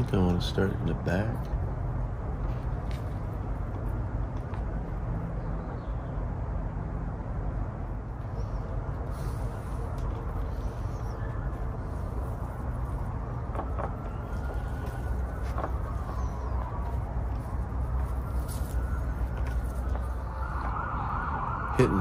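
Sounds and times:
low outdoor rumble: 0:00.0 - 0:21.7
faint bird chirps: 0:10.4 - 0:12.5.

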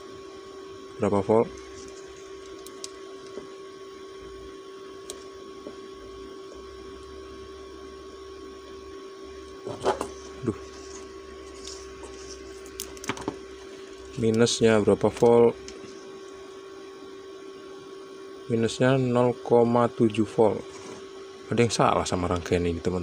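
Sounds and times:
steady electrical hum: 0:00.0 - 0:23.0
multimeter probes clicking: 0:01.5 - 0:03.5, 0:05.0 - 0:05.8, 0:12.5 - 0:15.9.

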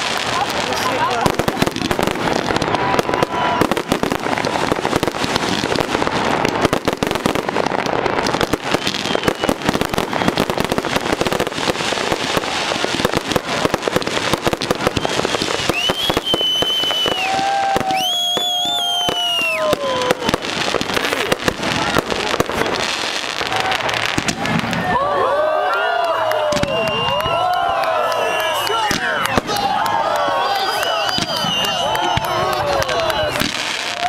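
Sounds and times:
fireworks whistling: 0:00.0 - 0:25.0, 0:26.3 - 0:34.0
fireworks bangs and crackling: 0:00.0 - 0:34.0.

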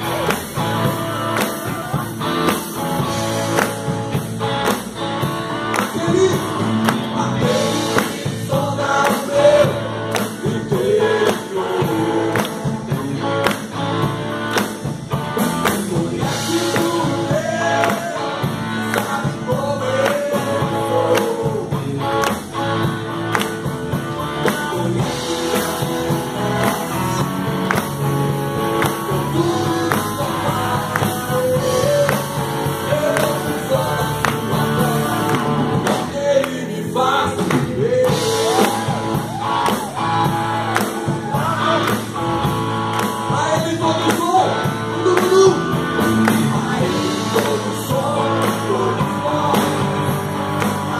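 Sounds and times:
drum kit beating: 0:00.0 - 0:50.9
electric guitars and bass: 0:00.0 - 0:50.9
man singing into microphone: 0:05.8 - 0:13.6, 0:15.6 - 0:22.4, 0:24.2 - 0:27.3, 0:28.7 - 0:39.0, 0:41.0 - 0:42.2, 0:43.2 - 0:50.9.

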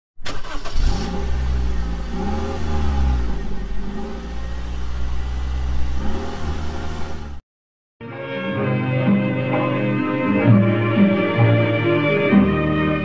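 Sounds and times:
engine rumbling: 0:00.2 - 0:07.4.

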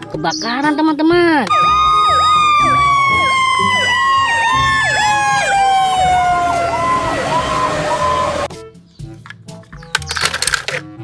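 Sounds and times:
siren wailing down: 0:01.5 - 0:08.5
siren whooping: 0:01.5 - 0:08.5.

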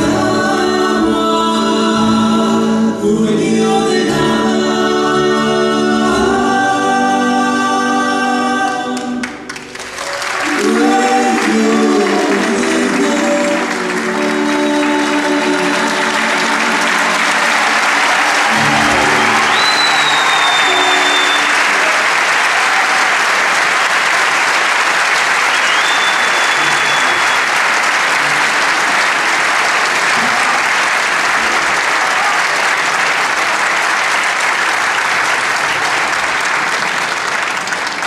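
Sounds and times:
audience applauding: 0:09.0 - 0:38.0.

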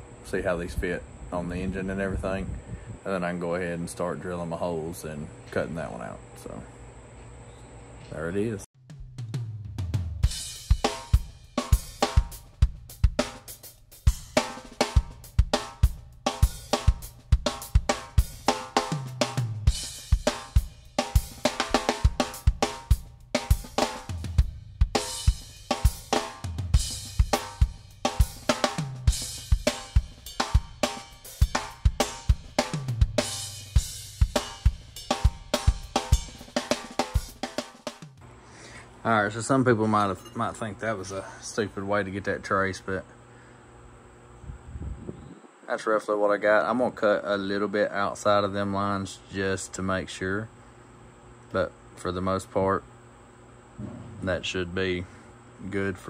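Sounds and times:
drum kit beat: 0:08.8 - 0:38.2
bass line: 0:15.0 - 0:36.5.

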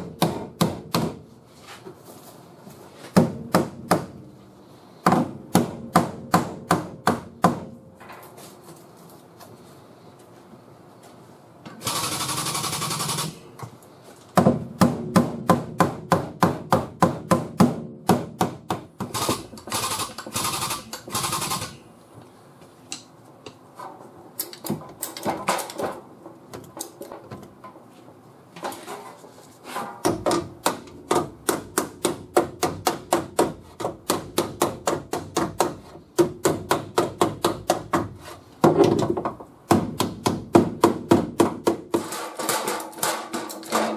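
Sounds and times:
hammer beating sheet metal: 0:00.0 - 0:01.3, 0:03.1 - 0:04.3, 0:05.0 - 0:07.8, 0:14.4 - 0:21.8, 0:30.0 - 0:38.8, 0:39.7 - 0:43.9.

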